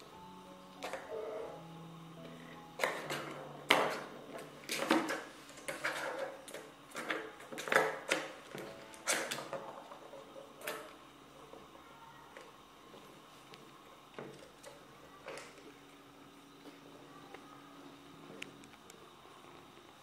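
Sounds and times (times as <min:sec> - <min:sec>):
plastic balls clacking in tracks: 0:02.7 - 0:11.0.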